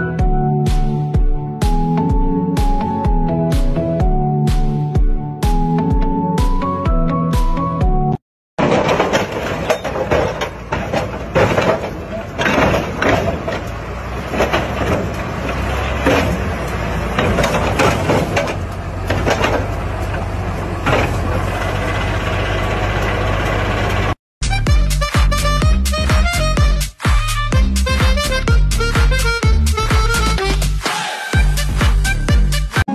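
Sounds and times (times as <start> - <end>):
knocks and clanks from rig: 8.6 - 16.5, 17.1 - 19.8
tractor diesel engine: 8.6 - 26.6.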